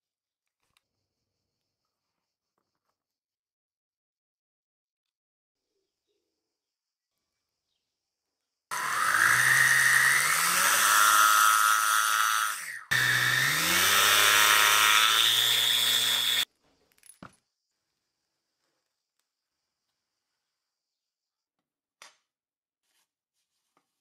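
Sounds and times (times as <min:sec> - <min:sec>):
small motor whining: 0:08.7 - 0:16.5.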